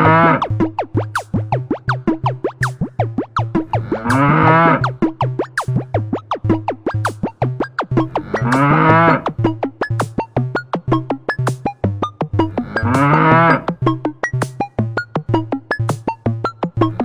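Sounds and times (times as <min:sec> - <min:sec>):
cow mooing: 0:00.0 - 0:00.4, 0:03.9 - 0:04.9, 0:08.3 - 0:09.3, 0:12.7 - 0:13.7
electronic dance music: 0:00.0 - 0:05.0, 0:08.0 - 0:09.4, 0:12.4 - 0:13.8.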